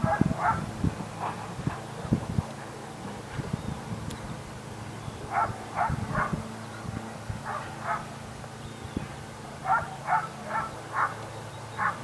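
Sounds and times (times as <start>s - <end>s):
dog barking: 0.0s - 0.6s, 5.3s - 6.4s, 7.5s - 8.1s, 9.6s - 11.2s, 11.8s - 12.0s.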